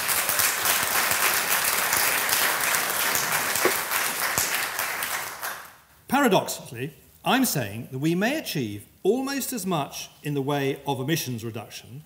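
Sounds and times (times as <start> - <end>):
audience applauding: 0.0 - 5.7.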